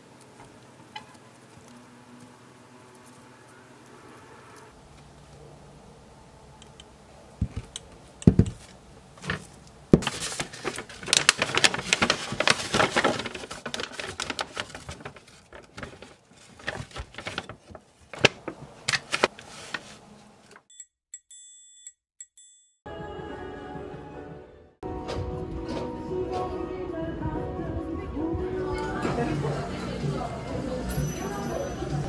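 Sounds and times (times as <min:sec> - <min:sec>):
paper bag crinkling: 0:08.6 - 0:20.1.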